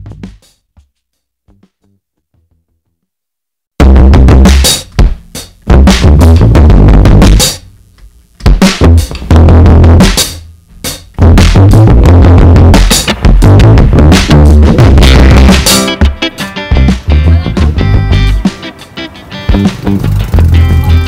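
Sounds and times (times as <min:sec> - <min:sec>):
pop backing track: 0:08.4 - 0:21.0.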